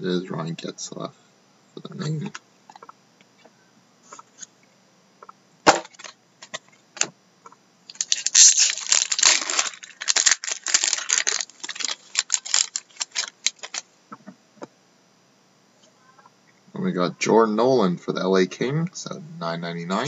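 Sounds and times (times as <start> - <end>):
foil wrapper crinkling and tearing: 7.9 - 13.8.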